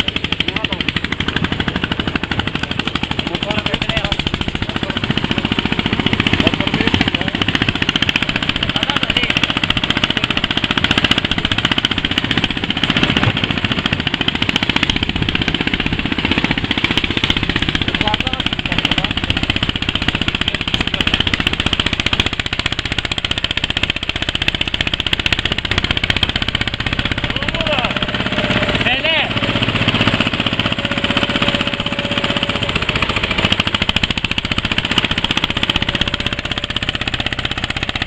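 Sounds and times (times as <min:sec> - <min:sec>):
tractor engine chugging: 0:00.0 - 0:38.0.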